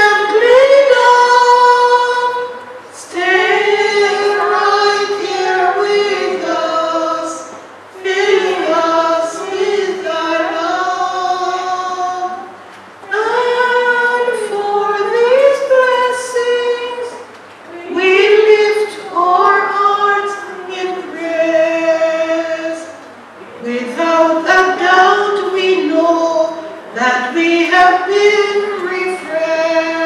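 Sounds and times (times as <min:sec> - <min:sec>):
woman singing gospel unaccompanied: 0:00.0 - 0:23.0, 0:23.6 - 0:30.0.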